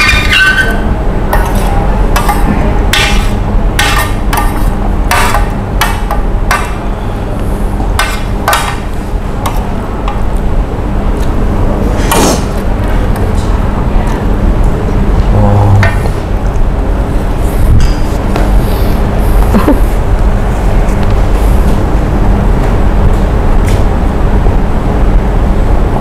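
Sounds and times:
cutlery scraping against a plate: 0.0s - 5.5s
steady low hum: 0.0s - 26.0s.

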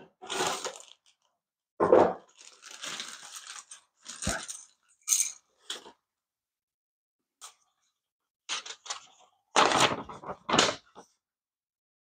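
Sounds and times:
plastic bag crinkling: 0.3s - 1.3s, 2.3s - 4.8s.

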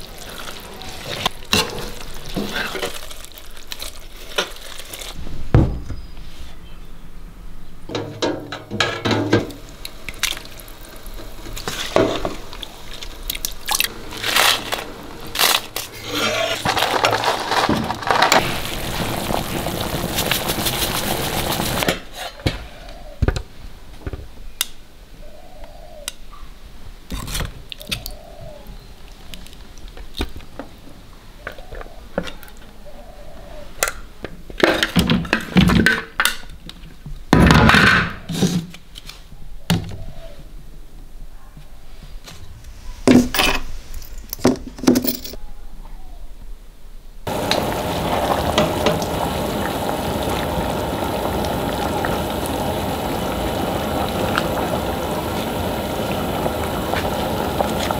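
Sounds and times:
pot of broth bubbling: 9.4s - 21.9s, 47.3s - 57.9s.

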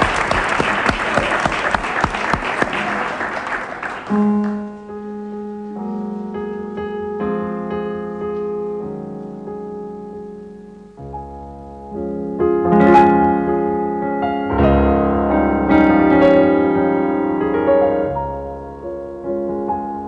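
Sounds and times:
audience applauding: 0.0s - 4.7s
slow piano chords: 0.0s - 20.0s.

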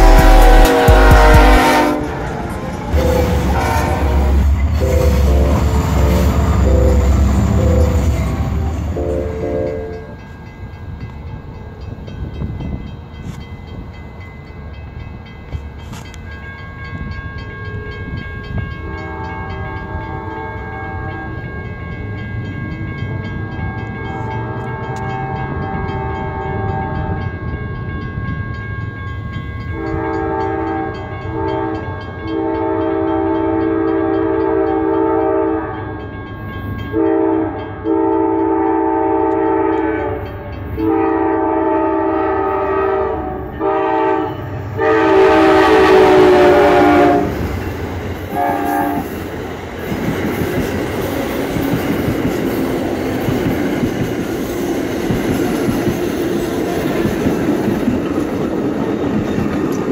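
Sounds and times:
locomotive air horn blasts: 0.0s - 7.7s, 18.8s - 21.3s, 24.2s - 27.3s, 29.8s - 35.8s, 36.9s - 47.4s, 48.3s - 49.1s
train wheels on rails: 0.0s - 59.9s.

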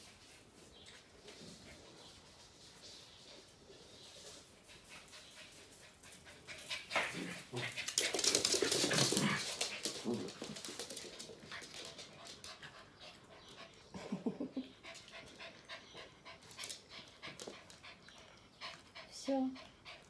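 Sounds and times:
dogs scuffling: 0.2s - 12.8s.

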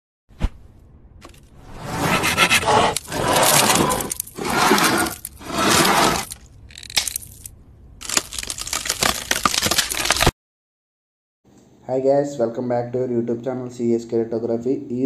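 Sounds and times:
hand saw cutting wood: 1.8s - 6.3s.

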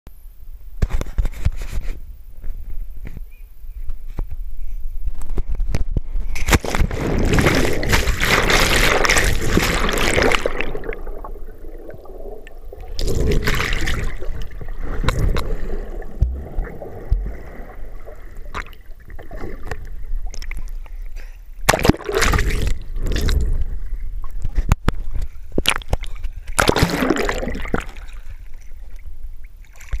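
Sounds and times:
underwater bubbling and gurgling: 5.6s - 30.0s
rush of air: 6.2s - 20.1s
person splashing into water: 6.4s - 19.8s, 21.7s - 23.4s, 25.6s - 28.3s
splashing and sloshing water: 6.4s - 30.0s.

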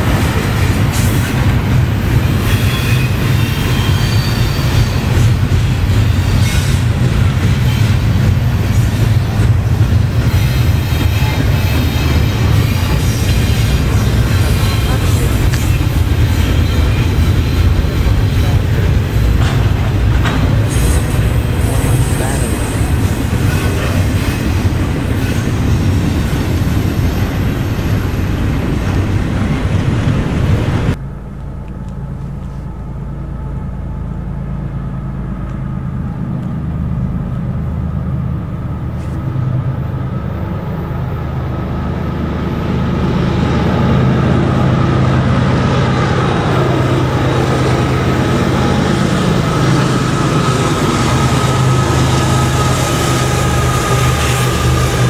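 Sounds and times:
diesel locomotive rumble: 0.0s - 55.0s
train wheels on rails: 0.0s - 55.0s
high steady whine: 30.4s - 55.0s.

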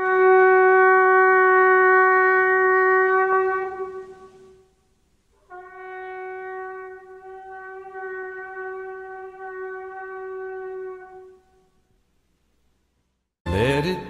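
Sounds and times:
shofar horn blowing long note: 0.0s - 4.8s, 5.4s - 11.7s.

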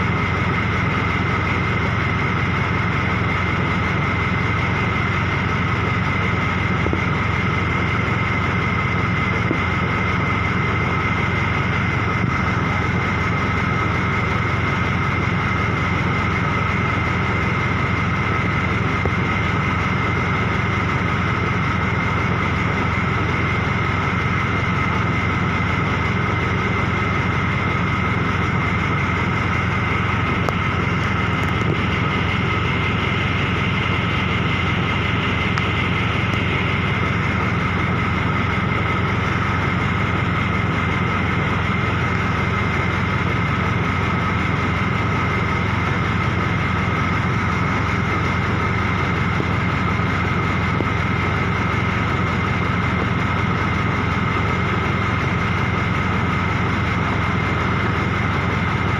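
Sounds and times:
machine engine drone: 0.0s - 58.9s.

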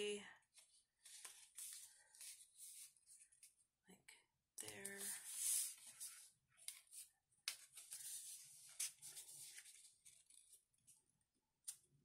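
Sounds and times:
paper rustling and rubbing: 0.6s - 3.2s, 4.9s - 10.6s.

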